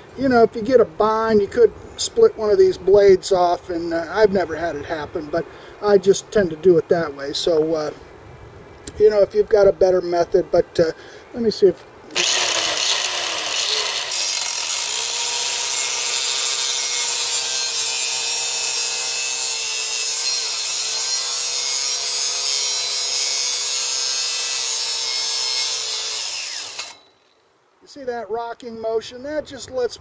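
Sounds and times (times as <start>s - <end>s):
angle grinder cutting steel: 12.1s - 27.1s.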